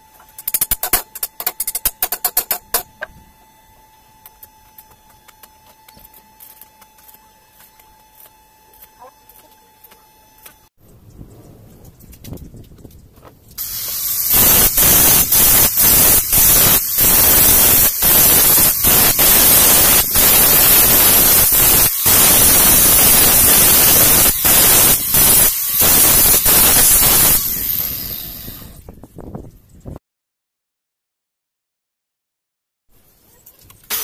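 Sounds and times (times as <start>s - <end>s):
angle grinder grinding steel: 0.0s - 10.7s, 13.6s - 28.9s.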